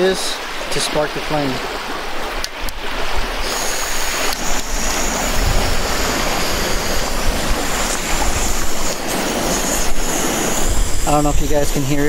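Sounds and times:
wind buffeting microphone: 0:01.7 - 0:12.0
gas stove burner hissing: 0:03.5 - 0:12.0.

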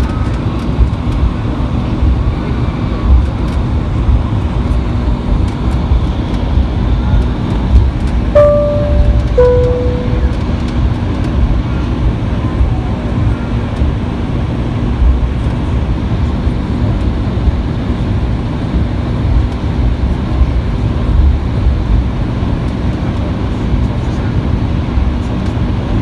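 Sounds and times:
jet engines running at low thrust: 0:00.0 - 0:26.0
faint steady hum: 0:08.4 - 0:10.4.

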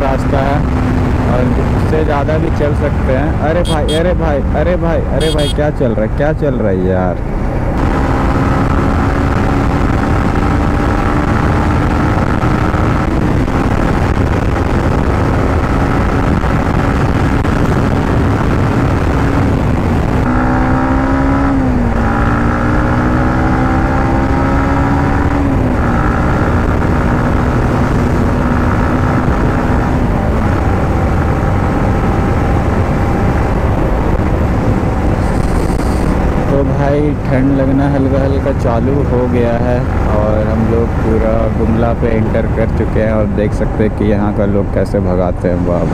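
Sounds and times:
motorcycle engine running: 0:05.2 - 0:05.6
wind noise: 0:07.2 - 0:45.9.

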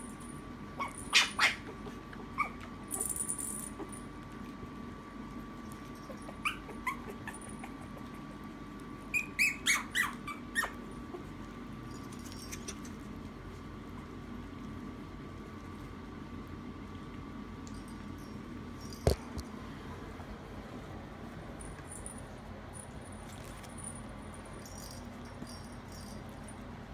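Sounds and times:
puppies squealing and yipping: 0:00.8 - 0:03.1, 0:06.1 - 0:08.3, 0:09.1 - 0:11.3.

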